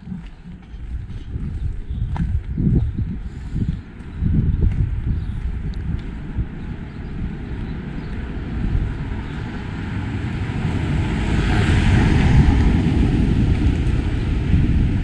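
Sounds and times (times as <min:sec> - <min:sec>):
wind rumble on microphone: 0:00.0 - 0:15.0
vehicle passing: 0:04.7 - 0:15.0.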